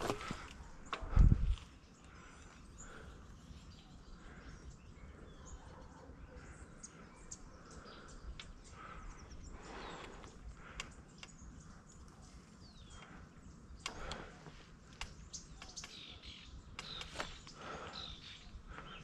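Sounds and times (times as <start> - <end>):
faint bird chirps: 1.6 - 19.0
small clicks: 13.8 - 14.3, 16.7 - 17.4.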